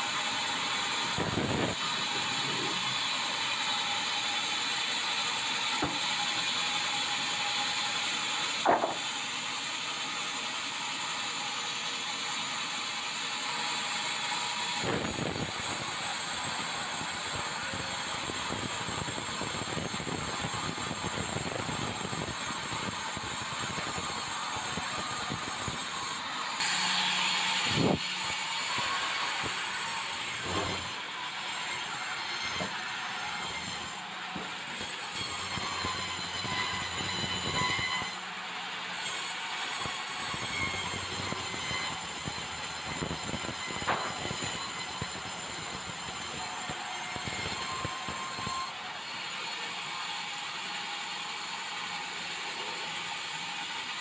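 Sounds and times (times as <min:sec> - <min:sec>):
band saw cutting log: 0:00.0 - 0:49.8
sharp knock: 0:08.7 - 0:09.0.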